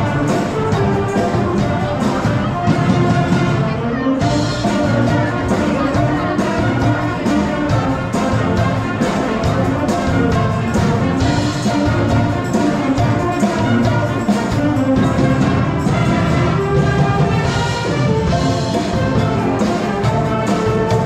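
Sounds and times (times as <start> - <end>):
brass band playing: 0.0 - 21.0
trombones: 0.0 - 21.0
trumpets: 0.0 - 21.0.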